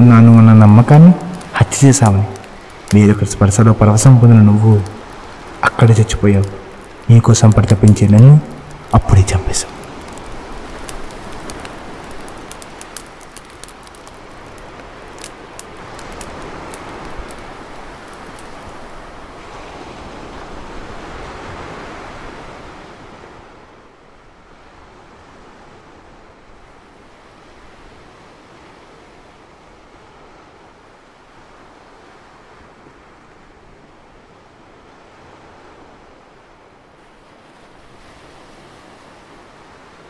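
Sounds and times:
fire crackling and popping: 0.0 - 21.1
ocean surf washing in: 0.0 - 40.0.

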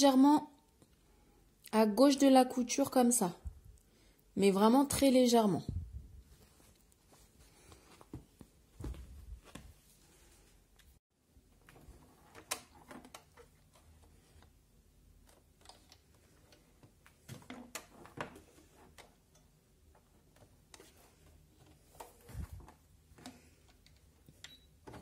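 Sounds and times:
faint fabric clicks and taps: 6.2 - 9.8.

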